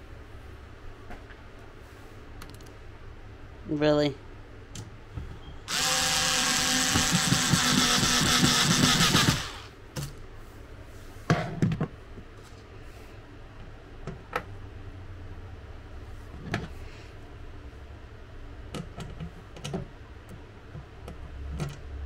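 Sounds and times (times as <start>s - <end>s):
power drill driving screw: 5.7s - 9.7s.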